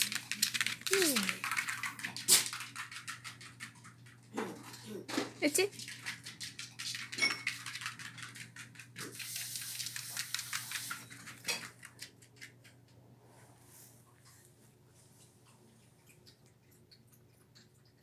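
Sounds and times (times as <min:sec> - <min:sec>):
dog claws clicking on floor: 0:00.0 - 0:13.0.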